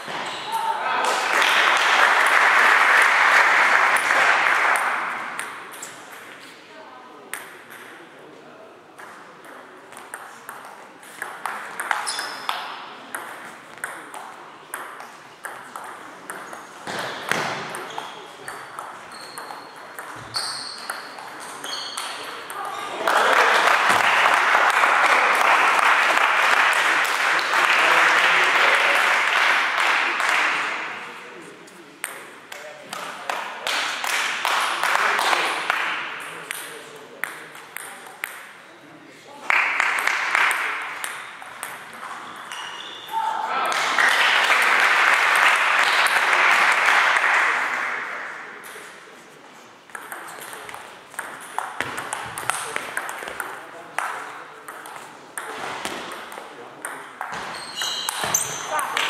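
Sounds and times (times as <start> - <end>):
spectators clapping: 1.0 - 5.4, 22.9 - 30.8, 33.3 - 36.0, 39.5 - 41.0, 43.7 - 48.4.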